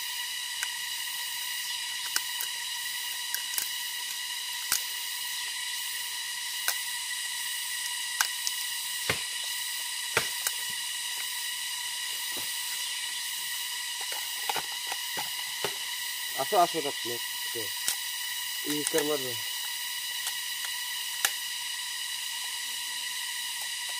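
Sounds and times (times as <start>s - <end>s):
bamboo sheaths cracking and tearing: 1.9s - 5.0s
high-pitched drone: 8.5s - 19.8s.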